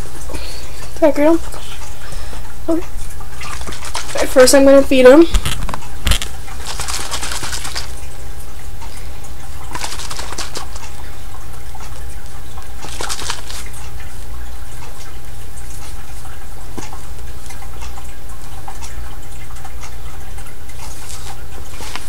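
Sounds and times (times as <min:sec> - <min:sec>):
steady low hum: 0:00.0 - 0:22.0
baby bottle swishing: 0:05.4 - 0:07.9, 0:12.8 - 0:13.7.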